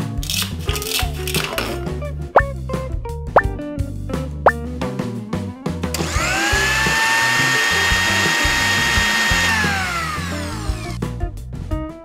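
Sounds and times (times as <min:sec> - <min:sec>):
toy blender motor whine: 0:06.0 - 0:11.0.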